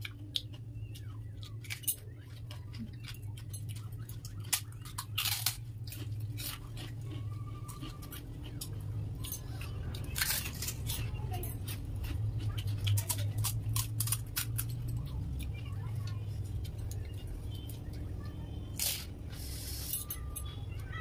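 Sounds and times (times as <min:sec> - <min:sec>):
crisp shells cracking and crunching: 0:00.0 - 0:15.6
steady low hum: 0:00.0 - 0:21.0.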